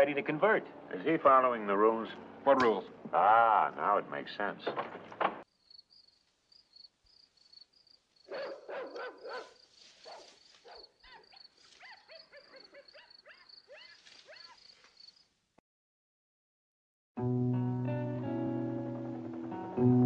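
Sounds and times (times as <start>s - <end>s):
crickets chirping: 5.5s - 15.4s
dog barking and yelping: 8.3s - 14.8s.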